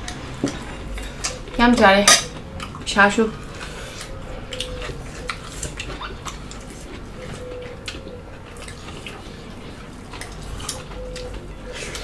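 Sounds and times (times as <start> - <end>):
wet chewing and smacking: 2.3 - 12.0.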